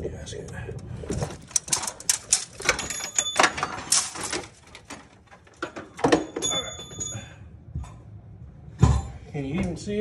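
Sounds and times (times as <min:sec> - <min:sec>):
engine parts and tools clattering: 0:01.0 - 0:08.0
high metallic ring: 0:06.2 - 0:07.5.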